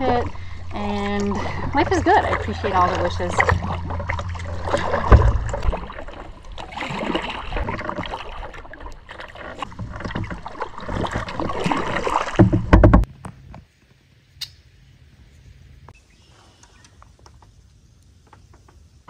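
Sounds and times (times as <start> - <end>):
paddle splashing and dripping: 0.0 - 13.1
sharp knocks: 12.4 - 13.1.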